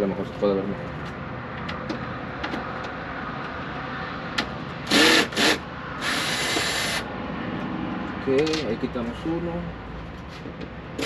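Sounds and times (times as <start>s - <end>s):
cordless drill whirring: 4.9s - 7.0s.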